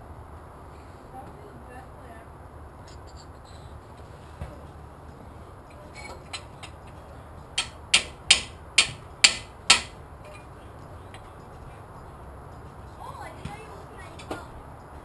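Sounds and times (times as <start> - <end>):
hammer blows on metal: 5.7 - 11.6.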